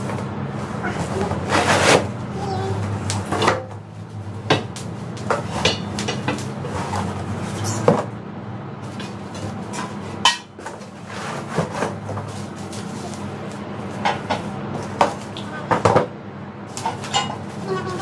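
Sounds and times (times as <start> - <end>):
hard objects clacking: 2.8 - 8.1.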